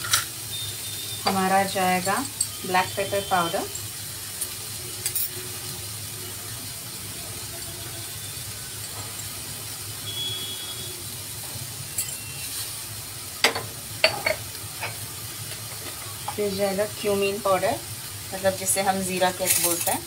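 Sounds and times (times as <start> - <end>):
food hissing in butter: 11.8 - 13.3.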